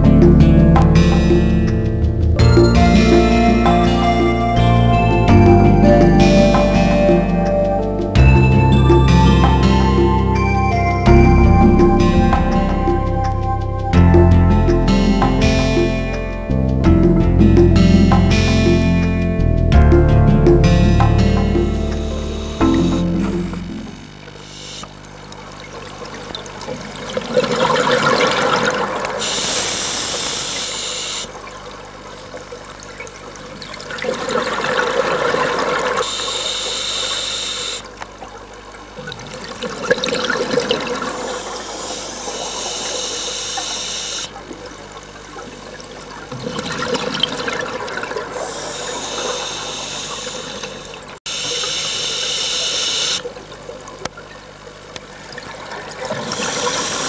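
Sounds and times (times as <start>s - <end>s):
regulator air hiss: 24.4s - 24.9s, 29.2s - 31.3s, 36.0s - 37.8s, 41.2s - 44.3s, 48.4s - 53.2s, 56.3s - 57.0s.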